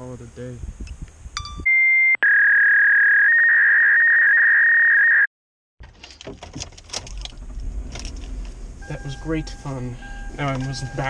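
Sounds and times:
electronic beep tone: 1.4 - 5.3, 8.8 - 11.0
clicks and rustling in a car: 5.8 - 9.2, 10.2 - 11.0.

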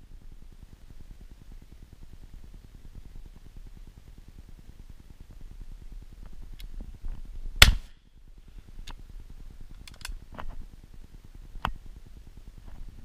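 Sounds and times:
shotgun shot: 7.6 - 7.9.

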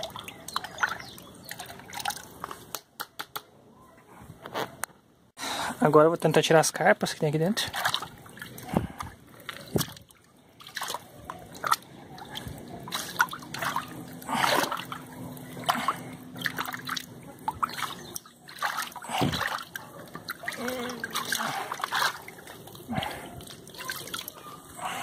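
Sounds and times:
water splashing and sloshing: 0.0 - 3.0, 6.8 - 25.0.

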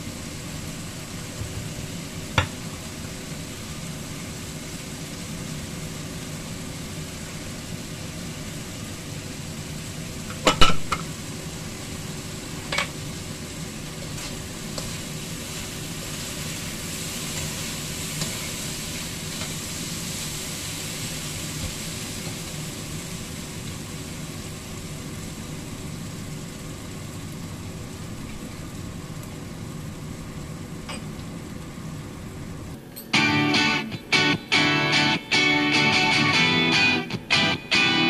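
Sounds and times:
meat sizzling in a pan: 0.0 - 38.0
guitar music: 33.1 - 38.0.

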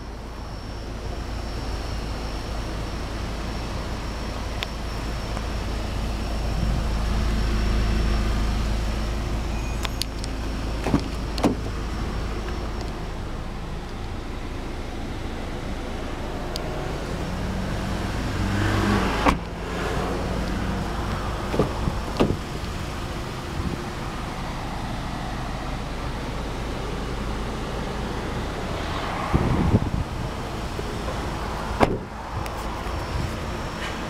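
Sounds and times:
steady low rumble: 0.0 - 34.0
car door shutting: 9.6 - 11.8, 19.1 - 19.6, 21.4 - 22.7, 31.0 - 32.2.

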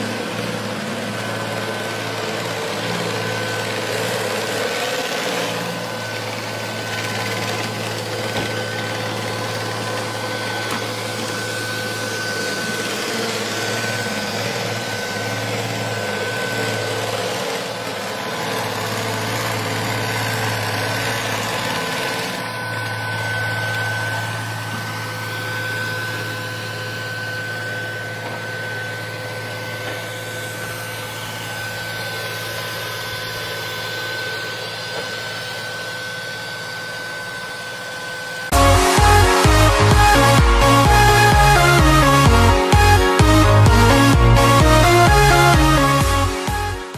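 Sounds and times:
robot vacuum running: 0.0 - 46.9.

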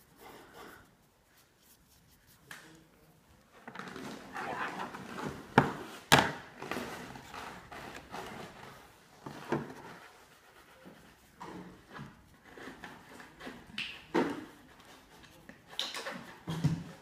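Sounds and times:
paper rustling and shuffling: 3.4 - 10.3.

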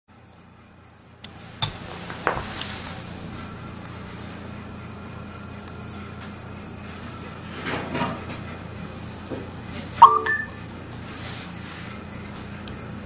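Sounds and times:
low hum and hiss: 0.1 - 7.6.

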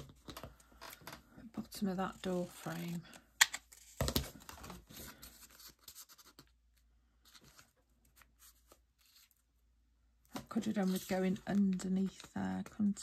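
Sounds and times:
card and paper rustling: 1.8 - 9.5, 10.4 - 13.0.

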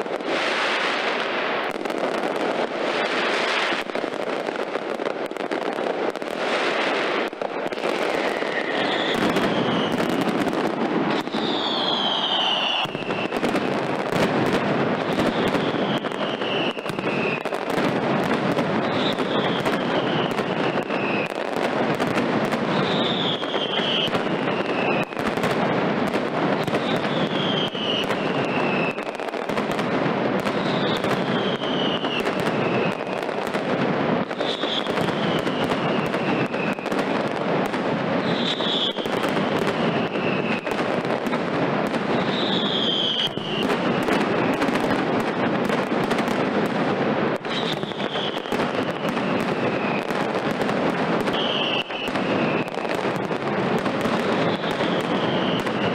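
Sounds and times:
firecracker bangs and crackling: 0.0 - 55.9
short falling whistles: 11.2 - 13.4, 42.3 - 43.6.

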